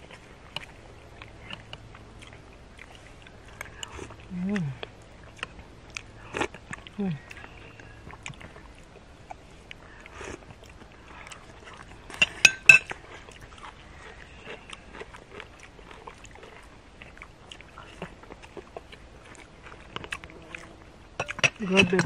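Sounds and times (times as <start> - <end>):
spoons clinking on plates: 12.2 - 12.9.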